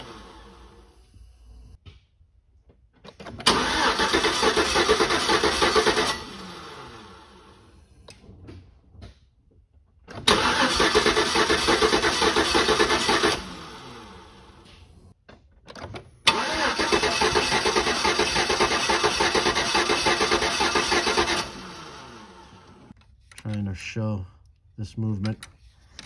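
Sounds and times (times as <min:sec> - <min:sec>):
engine cranking on starter: 0:00.0 - 0:00.8, 0:03.2 - 0:07.7, 0:10.1 - 0:14.9, 0:15.8 - 0:23.0.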